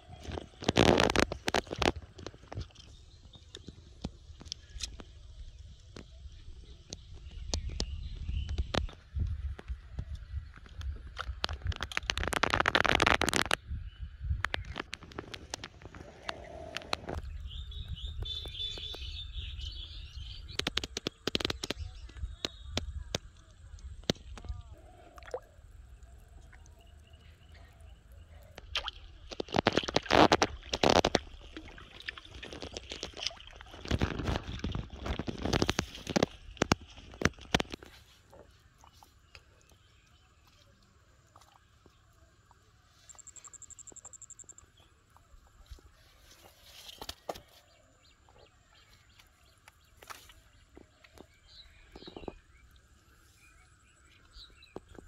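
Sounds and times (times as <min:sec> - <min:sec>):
bird chirping: 0:16.0 - 0:28.7, 0:37.8 - 0:55.0
fish thrashing and splashing: 0:28.5 - 0:39.8.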